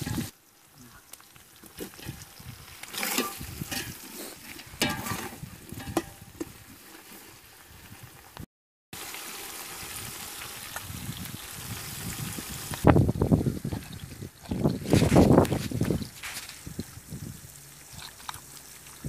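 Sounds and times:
oil sizzling in a pan: 0:00.0 - 0:08.4, 0:09.0 - 0:14.4.

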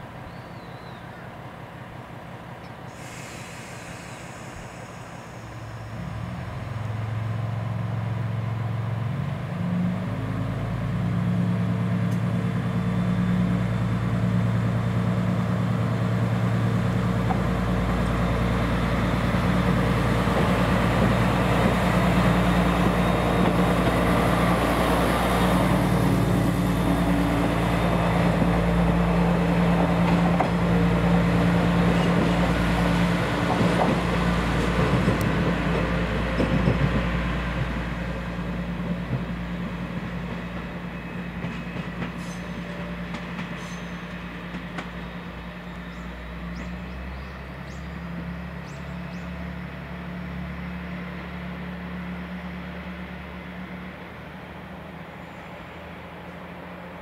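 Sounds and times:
diesel railcar engine pulling away: 0:00.0 - 0:57.0.

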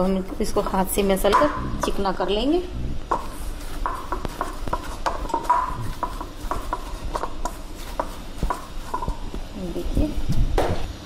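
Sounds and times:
dough kneading knocks: 0:03.1 - 0:10.8.

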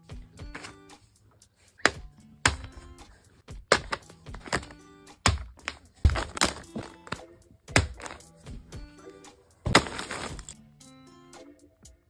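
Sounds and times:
background music: 0:00.0 - 0:12.0
fidget toys dropping on carpet: 0:03.7 - 0:07.2.

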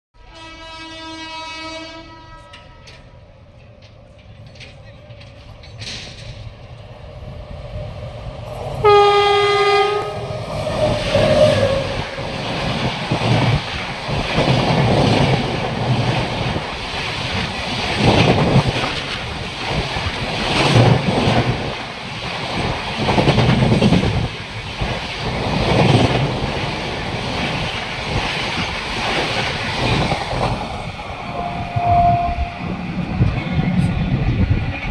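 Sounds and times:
locomotive horn: 0:00.2 - 0:03.1, 0:08.8 - 0:12.0, 0:31.2 - 0:32.8
train wheels clattering over rails: 0:02.5 - 0:07.5, 0:10.6 - 0:31.2.

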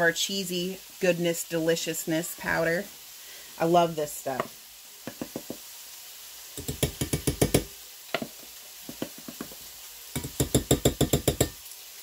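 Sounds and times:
metal spoon tapping bowl: 0:10.2 - 0:11.6.

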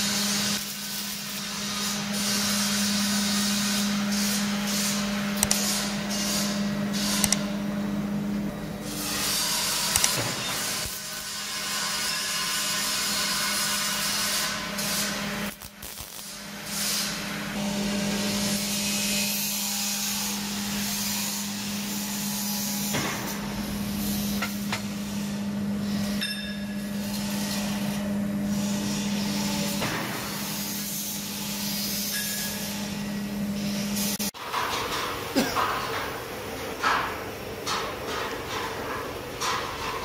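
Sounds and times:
welding arc crackling hiss: 0:08.9 - 0:17.4.

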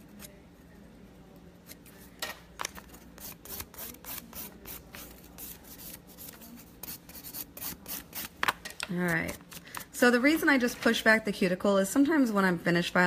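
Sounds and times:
cuticle pusher scraping nail: 0:03.2 - 0:08.4.

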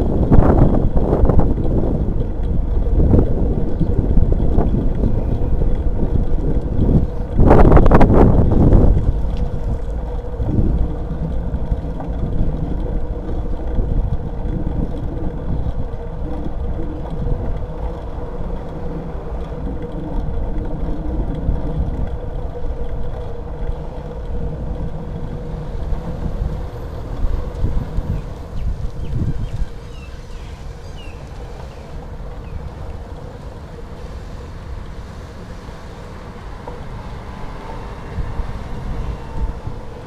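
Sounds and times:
low rumble from bicycle ride: 0:00.0 - 0:40.0
wind buffeting microphone: 0:00.0 - 0:40.0.

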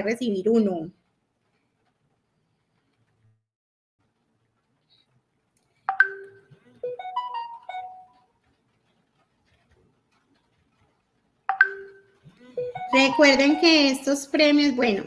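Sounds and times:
electronic phone chime: 0:05.9 - 0:08.1, 0:11.6 - 0:13.8.

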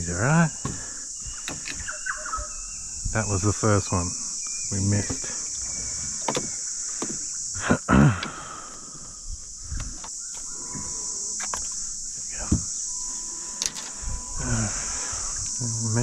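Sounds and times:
high-pitched insect chorus: 0:00.0 - 0:16.0.

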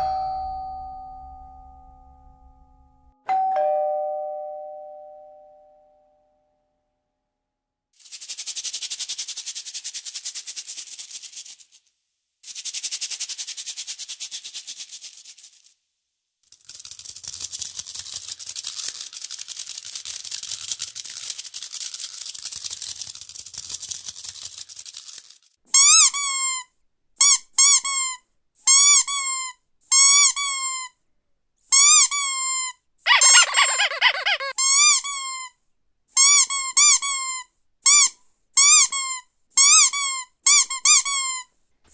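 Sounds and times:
high rapid rattling hiss: 0:08.0 - 0:15.8, 0:16.5 - 0:25.5
squeaky dog toy squeaking: 0:25.7 - 0:30.9, 0:31.7 - 0:35.5, 0:36.2 - 0:41.5.

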